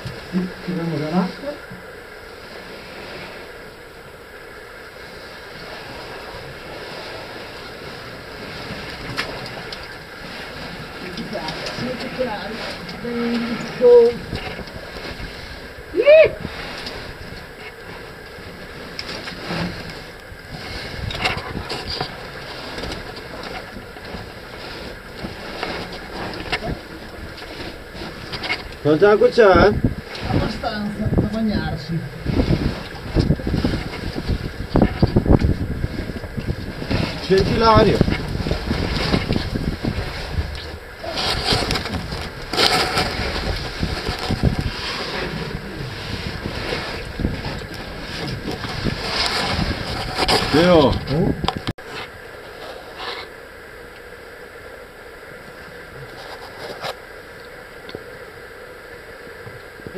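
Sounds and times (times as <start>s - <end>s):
steady hiss: 0.0s - 49.8s
low microphone rumble: 0.0s - 59.9s
suit scraping against rock: 6.9s - 15.8s, 16.4s - 53.3s
knocks and scrapes: 16.4s - 53.3s.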